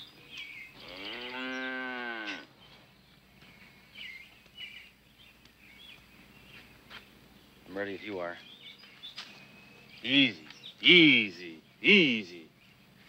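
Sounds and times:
cow mooing: 0:00.8 - 0:02.5.

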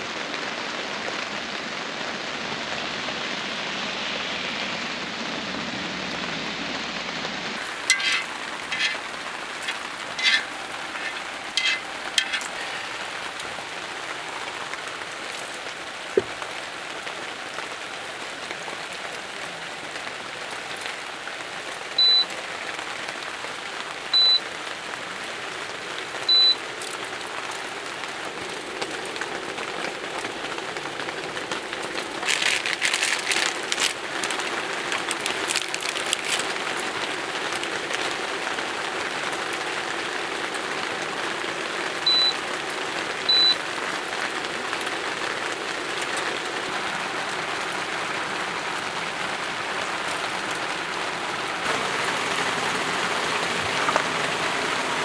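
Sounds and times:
steady rain falling: 0:00.0 - 0:55.0
short high beeps: 0:24.2 - 0:24.4.

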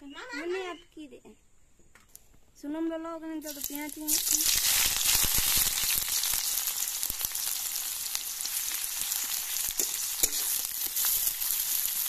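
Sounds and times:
onions sizzling in hot oil: 0:03.4 - 0:12.0
metal spatula scraping a pan: 0:09.7 - 0:11.7.

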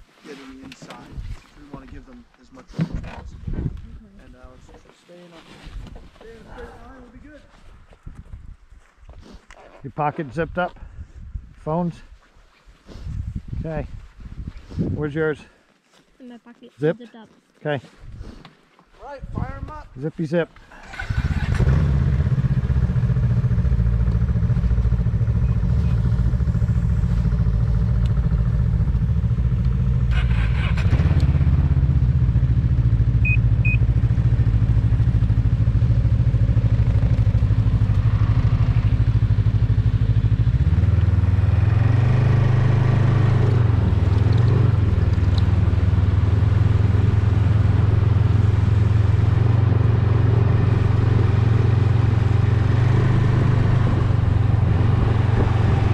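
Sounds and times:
snowmobile engines idling: 0:22.4 - 0:41.5.

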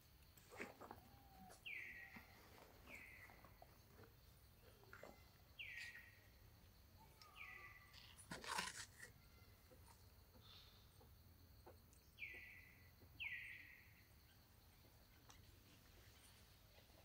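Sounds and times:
milk carton rustling: 0:08.2 - 0:09.1.

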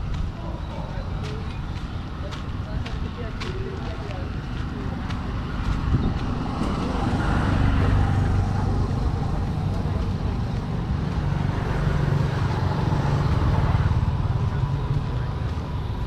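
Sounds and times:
traffic engines humming: 0:00.0 - 0:16.0.

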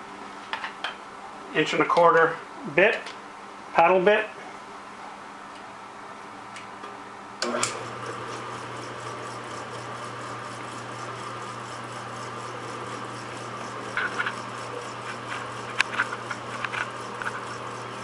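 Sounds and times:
drill press switch click: 0:07.4 - 0:07.8
drill press motor running: 0:07.4 - 0:18.0.

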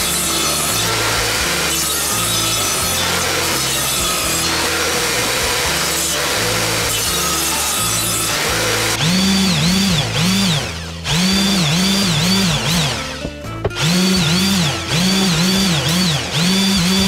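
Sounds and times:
stepping bass line: 0:09.0 - 0:16.9.

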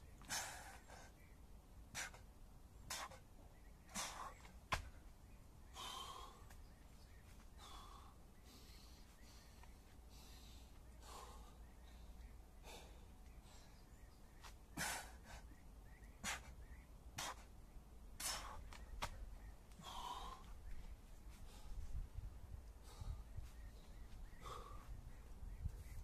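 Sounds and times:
man breathing hard: 0:00.2 - 0:01.2, 0:03.9 - 0:04.5, 0:05.7 - 0:06.6, 0:07.4 - 0:13.9, 0:14.8 - 0:15.6, 0:18.2 - 0:18.7, 0:19.7 - 0:20.6, 0:21.3 - 0:22.0, 0:22.6 - 0:25.2.

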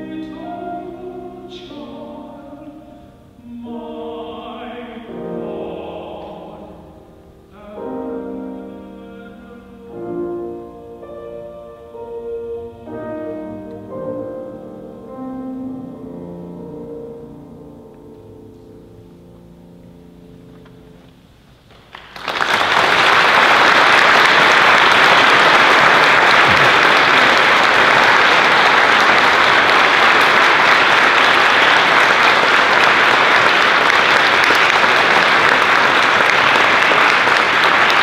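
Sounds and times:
piano chord: 0:00.0 - 0:21.0
audience applauding: 0:21.6 - 0:38.0.

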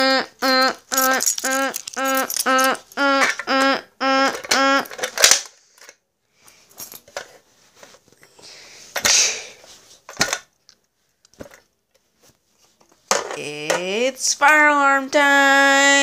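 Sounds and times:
plastic devices clicking and rattling: 0:00.9 - 0:03.5, 0:04.3 - 0:06.0.

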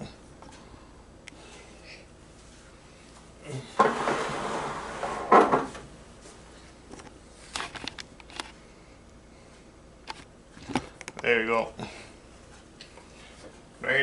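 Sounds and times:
scraping slide: 0:03.8 - 0:05.4.

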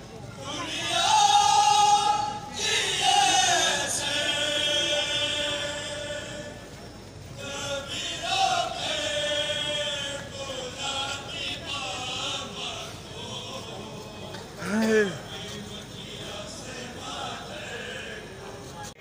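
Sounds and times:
men chanting together: 0:00.5 - 0:06.6, 0:07.4 - 0:18.5.

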